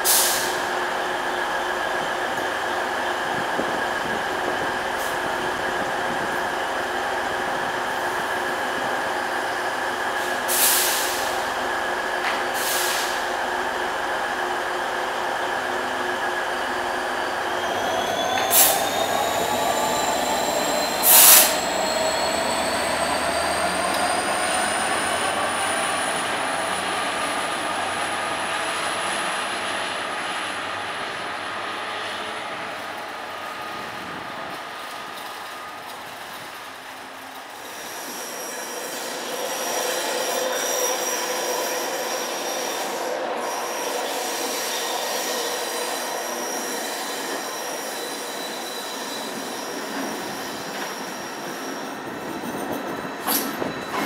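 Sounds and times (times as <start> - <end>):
diesel locomotive moving: 0.0 - 54.0
wheel flanges squealing: 16.6 - 26.8, 37.6 - 54.0.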